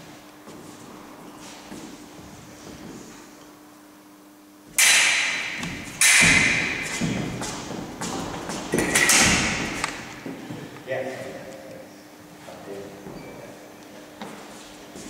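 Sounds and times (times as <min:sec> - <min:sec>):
steel blades clashing: 0:04.8 - 0:06.9
feet thudding on wooden floor: 0:05.6 - 0:10.7.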